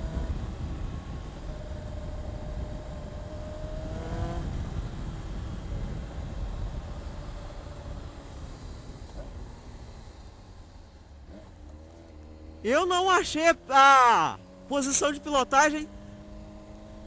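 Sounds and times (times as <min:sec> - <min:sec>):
wind rush on microphone: 0:00.0 - 0:11.4
motorcycle engine cruising: 0:00.0 - 0:17.0.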